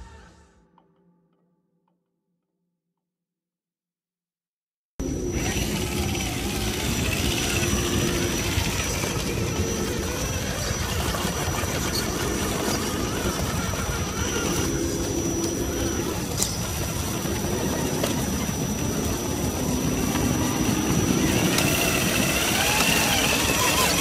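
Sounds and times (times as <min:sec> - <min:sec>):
rc car motor whining: 0:05.0 - 0:24.0.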